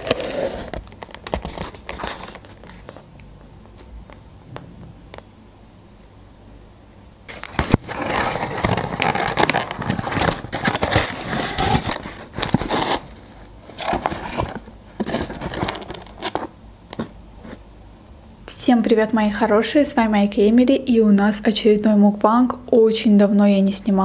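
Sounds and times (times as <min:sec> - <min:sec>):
cardboard box being opened: 0:00.0 - 0:03.0, 0:07.3 - 0:16.5.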